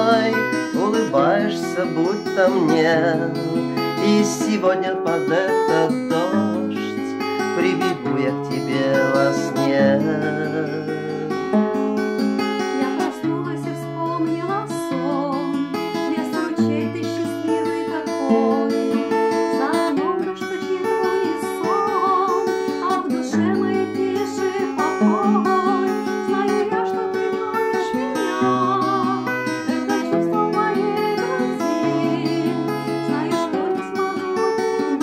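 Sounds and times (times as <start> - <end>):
woman singing: 0.0 - 11.6, 12.2 - 35.0
classical guitar strumming: 0.0 - 35.0.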